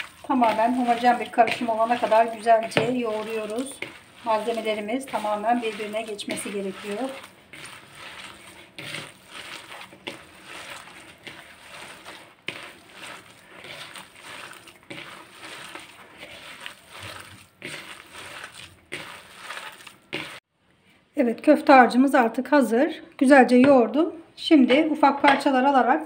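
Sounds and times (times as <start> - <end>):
hands kneading wet mixture: 0.0 - 20.5.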